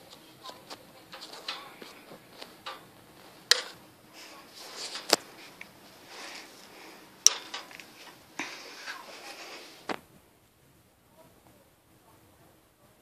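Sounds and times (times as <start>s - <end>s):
faint rustling: 0.0s - 10.4s.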